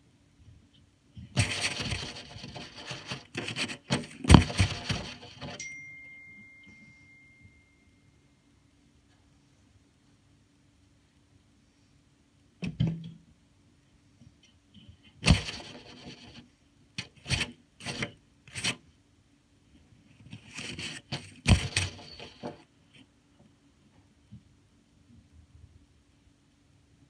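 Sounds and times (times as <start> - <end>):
phone rubbing against coat: 1.3 - 5.6, 15.2 - 16.4, 17.0 - 18.8, 20.3 - 22.6.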